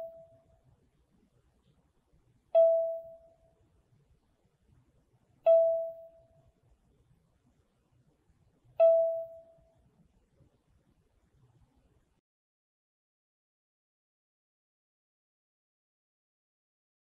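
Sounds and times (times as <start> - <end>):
bell-like chime: 2.6 - 3.3, 5.5 - 6.2, 8.8 - 9.6.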